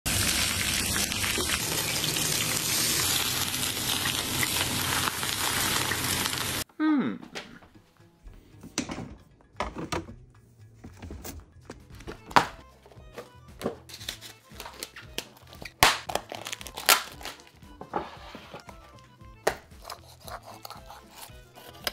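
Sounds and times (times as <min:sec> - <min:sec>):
hot oil sizzling loudly: 0:00.1 - 0:06.6.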